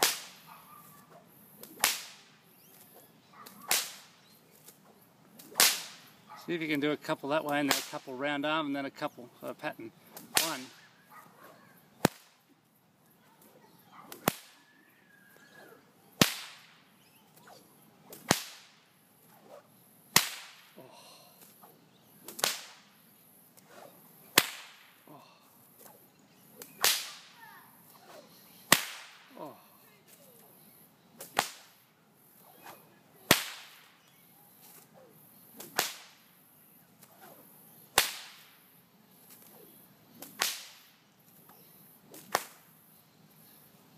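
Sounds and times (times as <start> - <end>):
whip cracking: 0.0 - 6.1, 7.5 - 8.2, 10.1 - 12.5, 13.4 - 14.7, 15.4 - 20.8, 21.4 - 23.0, 23.6 - 25.0, 25.7 - 30.5, 31.2 - 31.8, 32.4 - 34.0, 34.7 - 36.3, 37.0 - 38.6, 39.3 - 41.5, 42.1 - 42.7.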